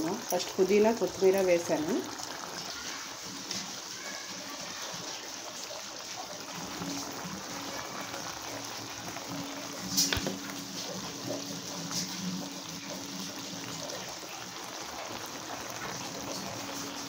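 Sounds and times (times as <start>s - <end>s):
water simmering and dripping: 0.0s - 17.0s.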